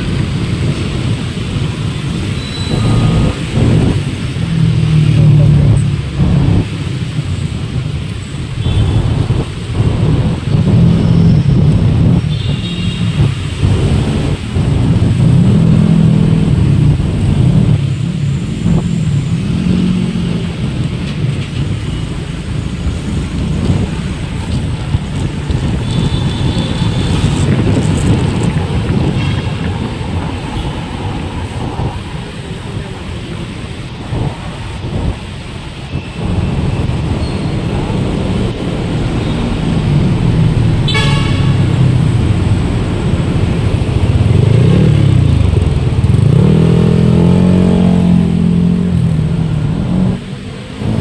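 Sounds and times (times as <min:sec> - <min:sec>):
wind rumble on microphone: 0:00.0 - 0:51.0.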